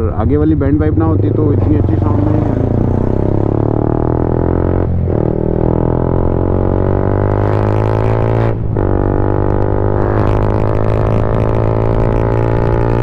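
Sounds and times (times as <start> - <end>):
motorcycle engine droning: 0.0 - 13.0.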